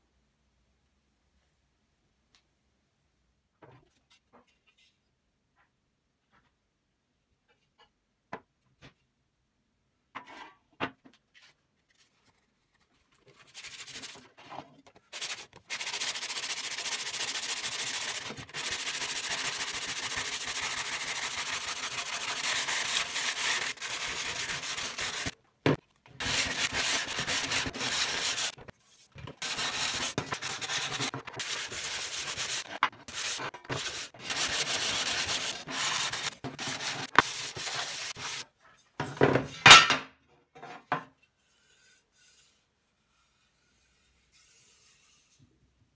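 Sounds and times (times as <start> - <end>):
abrasive pad scrubbing sheet metal: 15.1 - 25.4, 26.2 - 28.7, 29.4 - 38.4.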